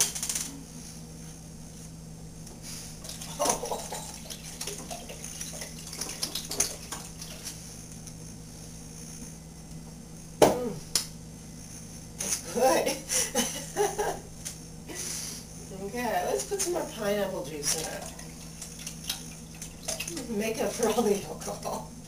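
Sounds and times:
small splashes and clinks: 3.0s - 7.5s, 17.7s - 21.2s.

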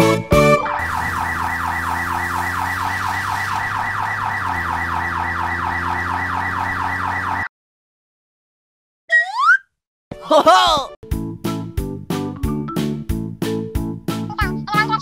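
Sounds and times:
cartoon police siren yelp: 0.3s - 7.5s.

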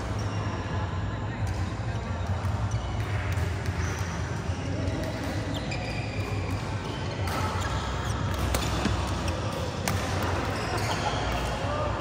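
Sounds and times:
rackets hitting shuttlecock: 1.4s - 12.0s
shoe soles squeaking: 3.8s - 11.4s.

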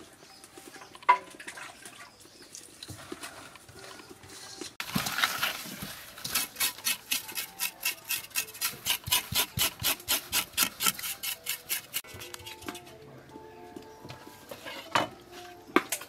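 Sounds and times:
knife scraping fish skin: 6.2s - 12.6s.

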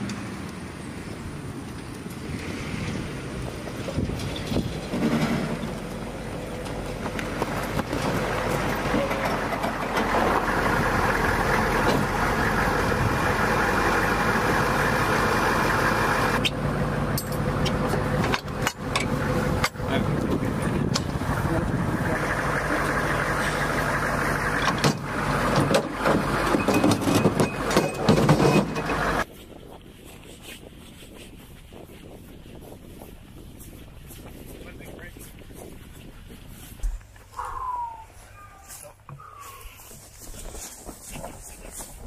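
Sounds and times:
diesel engines running: 0.0s - 29.3s.

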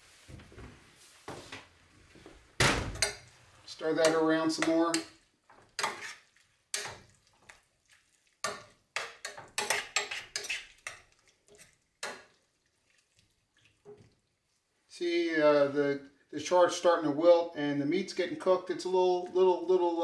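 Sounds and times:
metal spoon scraping a pot: 3.0s - 7.2s, 8.4s - 12.4s.

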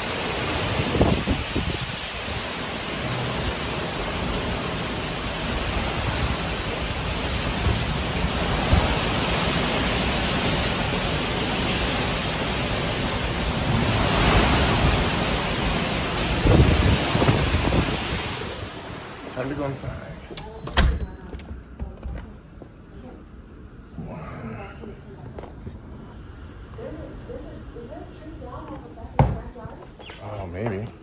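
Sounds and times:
wind gusting on microphone: 0.0s - 19.7s
storm wind rushing through trees: 0.0s - 20.6s.

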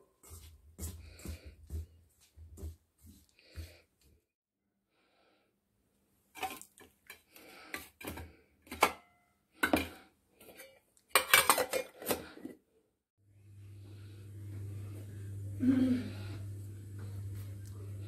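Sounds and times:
metal bowl and lid clattering: 6.4s - 12.5s.

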